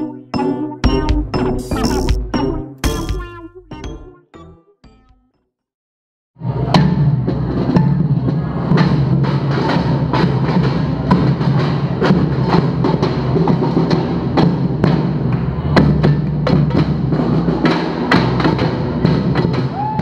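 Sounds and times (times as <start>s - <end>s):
snare and bass drums beating: 0.8s - 4.1s.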